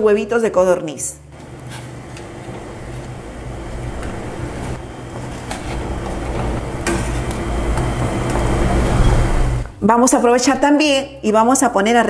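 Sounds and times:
water boiling in a pot: 1.4s - 9.7s.

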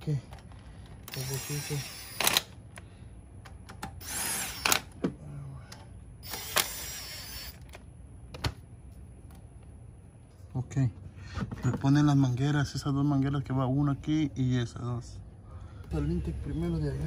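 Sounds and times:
power driver whirring: 1.0s - 2.6s, 3.8s - 5.0s, 6.2s - 7.8s.

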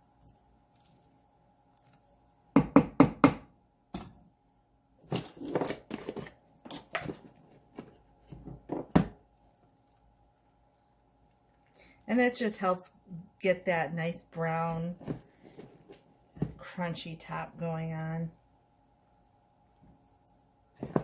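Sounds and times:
faint steady hum: 0.0s - 21.0s
containers thudding: 20.8s - 21.0s.

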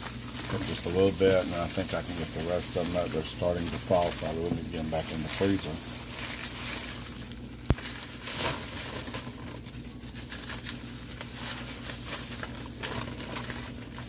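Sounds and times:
paper and plastic bag rustling: 0.0s - 14.0s
steady low hum: 0.0s - 14.0s.

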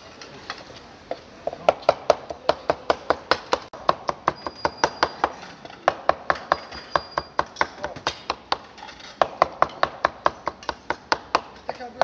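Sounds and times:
knife chopping on wooden board: 1.7s - 6.6s.

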